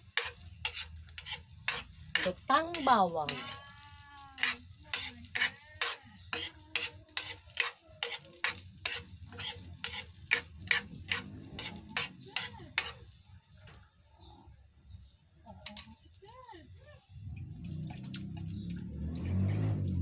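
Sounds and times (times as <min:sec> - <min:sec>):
spoon scraping a frying pan: 0:00.0 - 0:13.2, 0:15.6 - 0:16.0
oil sizzling: 0:00.0 - 0:20.0.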